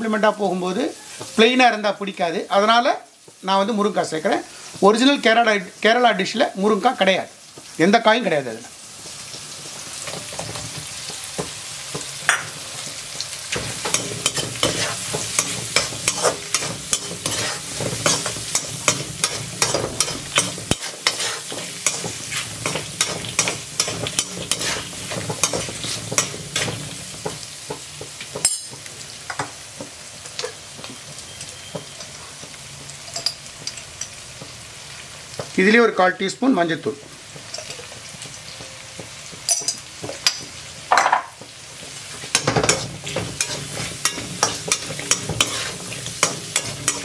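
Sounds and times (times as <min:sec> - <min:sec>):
food sizzling in hot oil: 0:00.0 - 0:47.0
spatula scraping pan: 0:13.5 - 0:32.6, 0:41.8 - 0:47.0.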